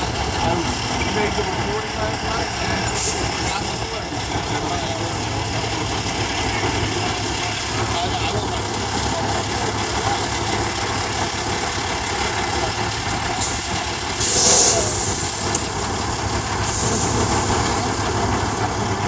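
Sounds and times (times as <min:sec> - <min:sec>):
diesel truck engine idling: 0:00.0 - 0:19.0
air hiss: 0:13.4 - 0:15.5.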